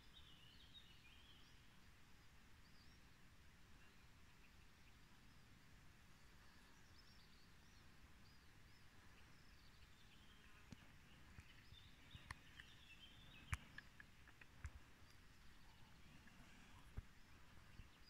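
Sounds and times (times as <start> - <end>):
distant bird chirps: 6.3 - 18.0.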